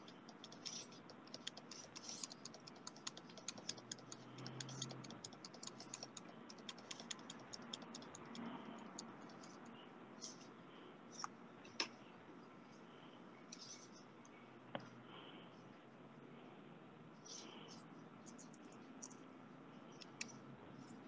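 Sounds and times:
keyboard typing clicks: 0.0 - 9.6.

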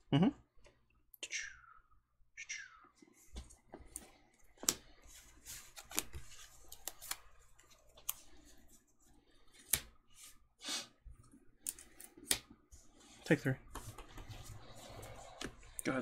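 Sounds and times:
cards rustling and sliding: 3.2 - 10.4, 11.2 - 16.0
cards clicking together: 5.7 - 7.3.

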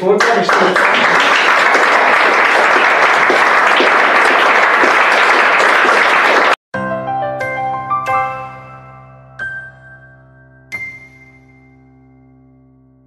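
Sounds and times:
small audience applauding: 0.0 - 6.6
chiming jingle: 7.4 - 12.5.

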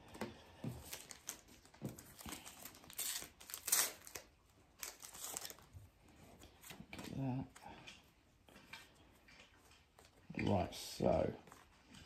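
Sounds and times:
plastic wrapper crinkling and tearing: 0.8 - 5.8.

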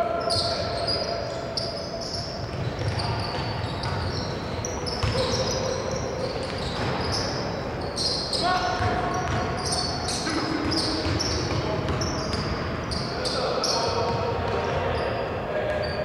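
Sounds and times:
sneaker squeaks: 0.0 - 16.0
basketball bouncing on floor: 8.8 - 9.6, 10.6 - 12.5.

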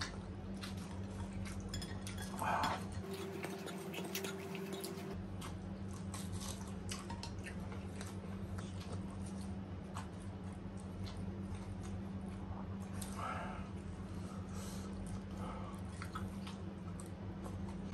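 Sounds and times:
chewing: 0.0 - 17.9
utensils clinking on bowls: 1.7 - 5.2
low hum: 2.4 - 5.3.

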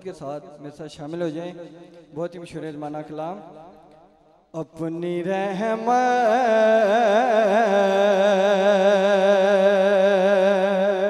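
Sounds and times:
man singing a long note: 5.2 - 11.0.

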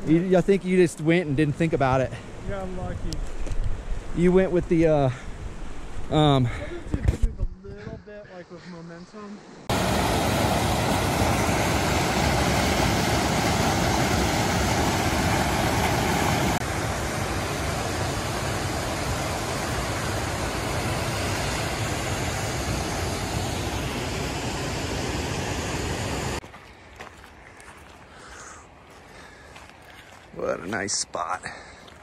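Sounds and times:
rushing creek water: 9.7 - 24.4.

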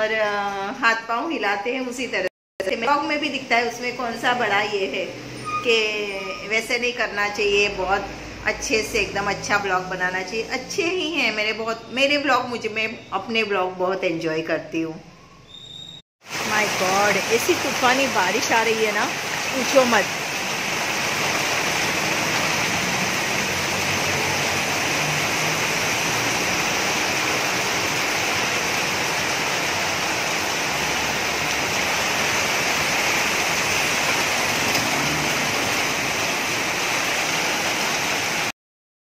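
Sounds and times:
heavy rain on pavement: 16.2 - 38.5.

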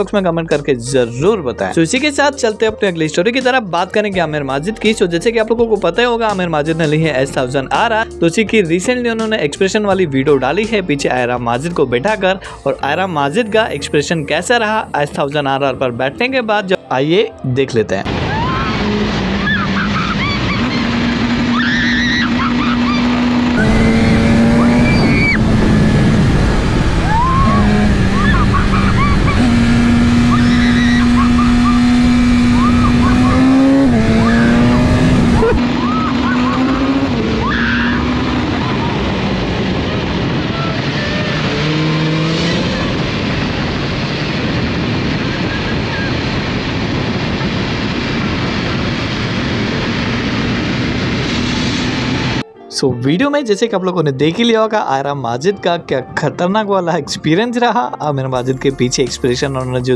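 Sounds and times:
motorcycle engine at speed: 18.4 - 52.4
heavy wind noise: 23.5 - 52.4.

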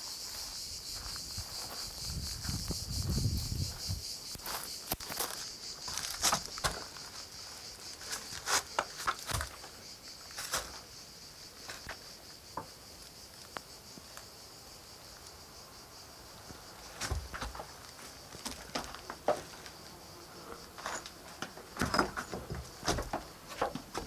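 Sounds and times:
insects chirring: 0.0 - 24.0
footsteps on loose stone rubble: 4.4 - 7.2, 7.9 - 9.7, 17.0 - 19.6.

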